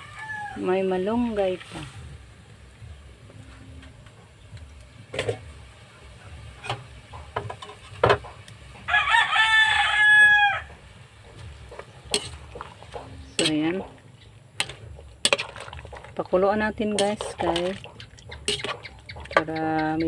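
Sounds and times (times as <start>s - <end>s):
rooster crowing: 0.0s - 0.6s, 8.8s - 10.8s.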